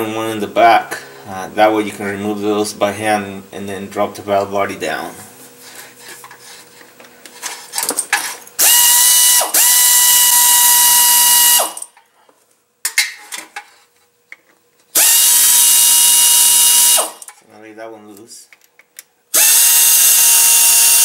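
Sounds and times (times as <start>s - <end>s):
air ratchet whining: 8.6s - 11.9s, 15.0s - 17.3s, 19.4s - 21.0s.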